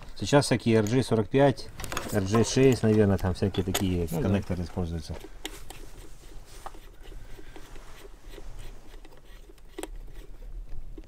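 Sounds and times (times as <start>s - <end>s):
clicks and rustling of handling equipment: 0.0s - 11.0s.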